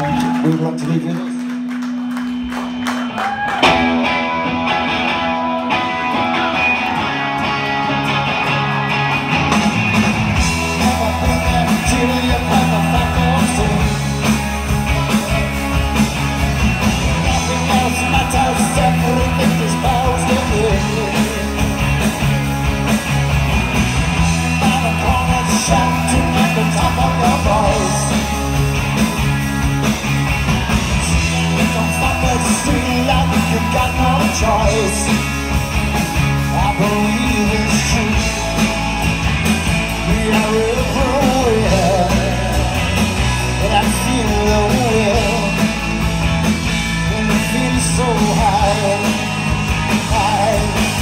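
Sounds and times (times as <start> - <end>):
live rock band playing: 0.0 - 51.0
man singing lead vocal: 10.4 - 15.7, 17.1 - 21.8, 24.2 - 28.6, 31.0 - 35.5, 36.3 - 38.8, 39.9 - 46.0, 46.9 - 51.0.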